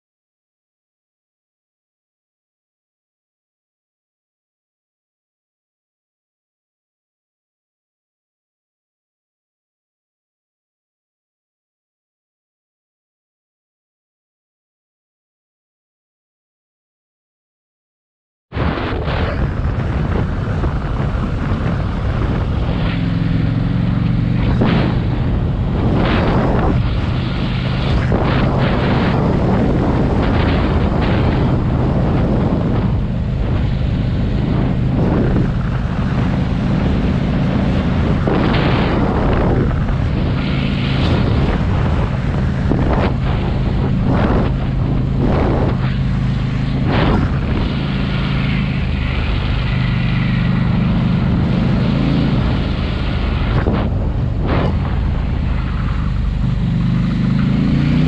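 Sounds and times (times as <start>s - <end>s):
motorcycle engine running: 18.6s - 58.0s
wind buffeting microphone: 18.6s - 58.0s.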